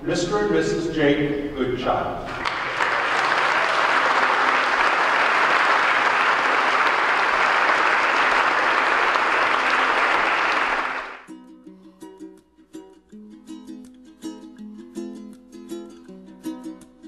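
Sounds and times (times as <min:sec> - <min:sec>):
congregation applauding: 0:02.3 - 0:11.3
plucked-string music: 0:11.3 - 0:17.0.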